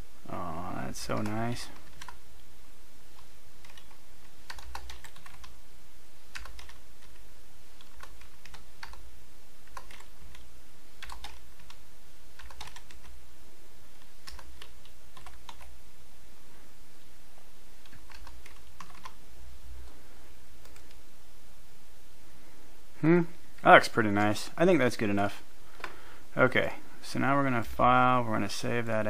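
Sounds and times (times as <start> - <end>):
computer keyboard typing: 1.1 - 2.2, 3.2 - 5.6, 6.3 - 7.2, 7.8 - 9.0, 9.6 - 11.8, 12.4 - 13.1, 14.2 - 15.7, 17.8 - 19.2, 20.6 - 21.0.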